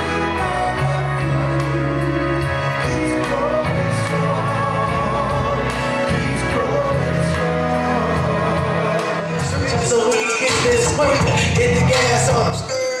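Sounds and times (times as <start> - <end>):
instrumental accompaniment with bass: 0.0 - 12.9.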